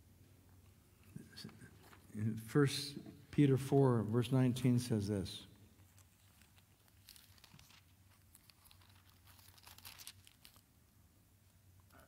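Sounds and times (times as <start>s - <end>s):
pages being turned: 1.1s - 2.2s, 5.8s - 10.7s.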